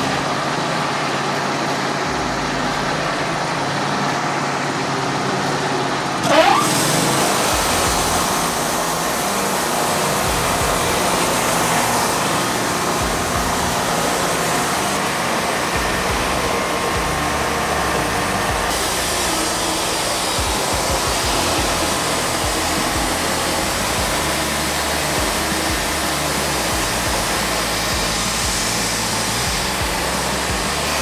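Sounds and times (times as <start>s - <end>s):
band sawmill cutting log: 0.0s - 31.0s.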